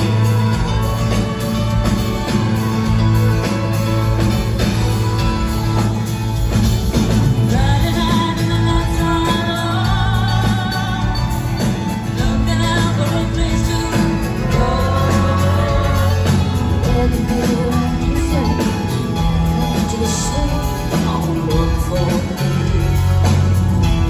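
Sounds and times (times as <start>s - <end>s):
live pop-rock band: 0.0s - 24.0s
woman singing lead vocal: 7.4s - 22.6s.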